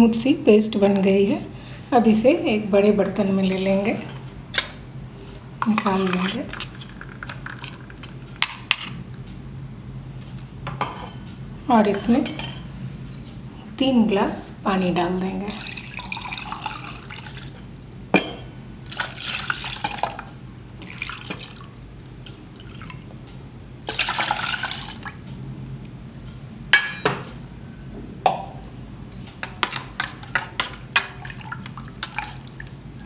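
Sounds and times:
liquid pouring into a metal pot: 15.5 - 17.6, 20.8 - 21.8, 23.9 - 25.2.

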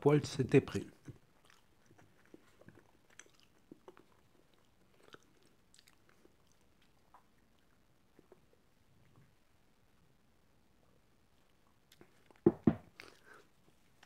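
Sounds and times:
mouth clicks and smacks: 1.0 - 8.6
person chewing: 1.1 - 8.6, 13.0 - 14.0.

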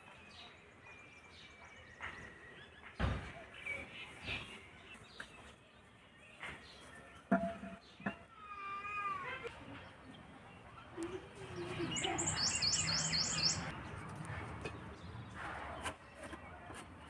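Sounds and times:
birds chirping: 9.5 - 15.5.

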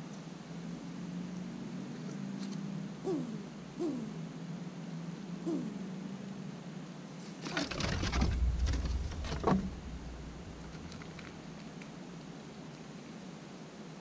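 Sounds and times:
squirrel claws scratching: 7.4 - 11.9
low rumble: 7.7 - 12.3.

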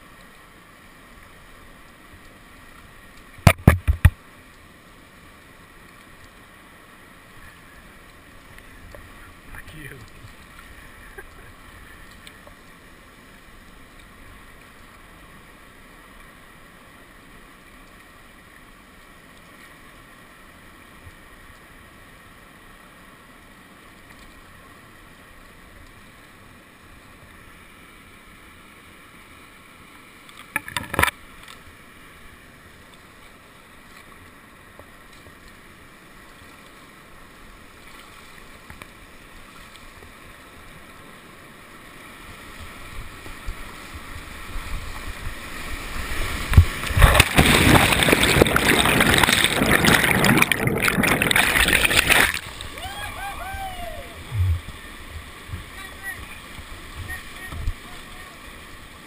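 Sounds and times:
whitewater rushing: 41.7 - 59.0.

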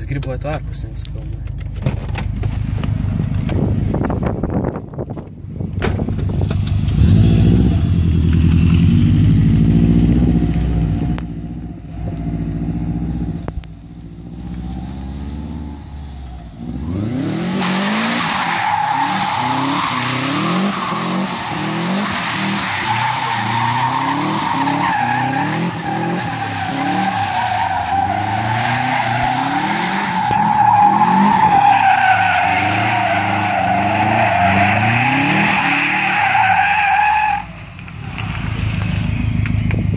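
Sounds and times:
car engine revving: 6.1 - 39.9
tyres squealing: 17.7 - 37.6.

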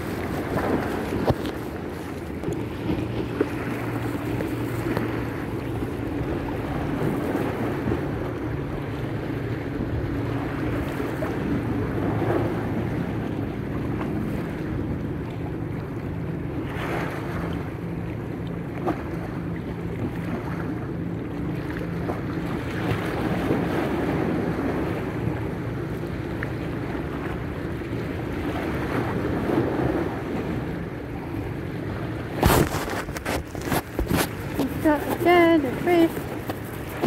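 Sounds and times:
wind buffeting microphone: 0.0 - 14.9
sea water lapping: 0.0 - 37.0
camera handling rustles and knocks: 0.4 - 1.8, 32.4 - 35.3.

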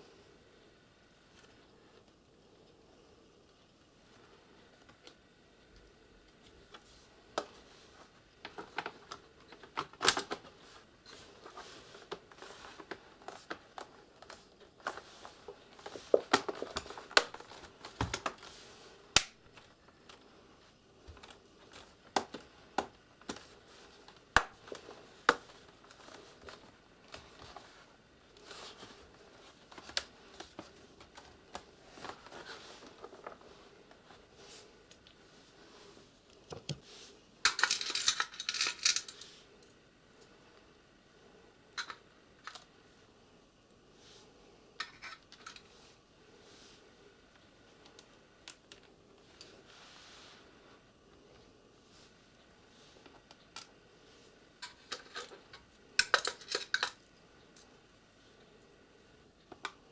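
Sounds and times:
small screws rattling in a tray: 37.5 - 39.2.

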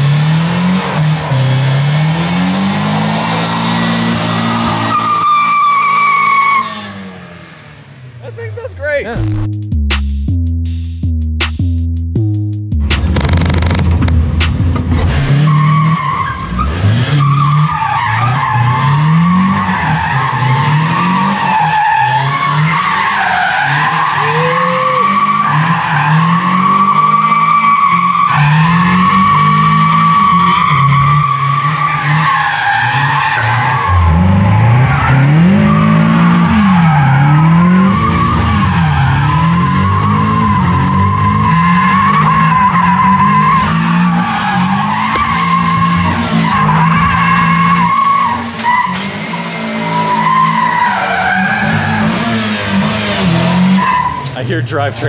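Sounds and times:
car engine revving: 0.0 - 55.0
tyres squealing: 0.6 - 7.1, 15.3 - 55.0.

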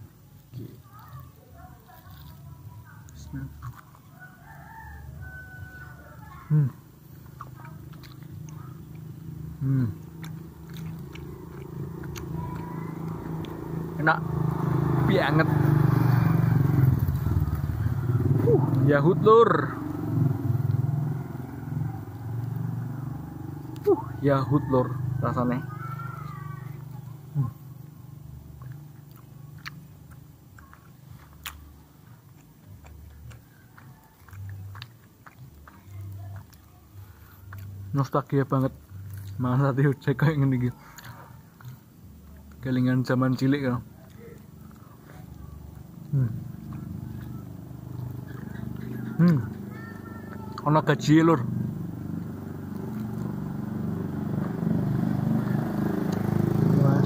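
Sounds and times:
close-up chewing: 0.0 - 15.2, 19.8 - 56.8
wet mouth clicks: 7.3 - 13.6, 32.3 - 36.7.

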